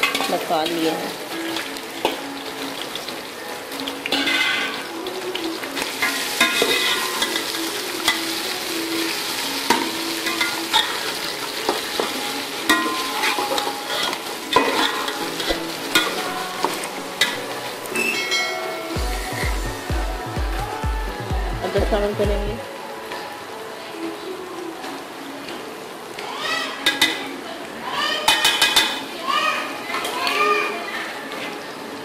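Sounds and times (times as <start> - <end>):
meat sizzling in a pot: 0.0 - 20.4.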